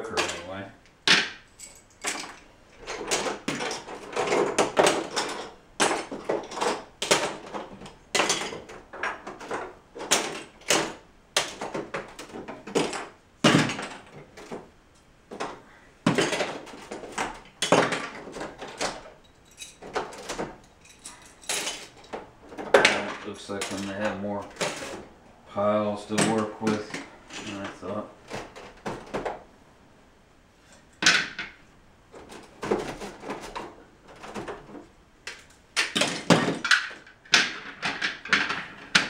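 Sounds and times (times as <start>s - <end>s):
plastic bricks clicking and clattering: 2.1s - 14.6s, 15.3s - 25.0s, 32.2s - 39.0s.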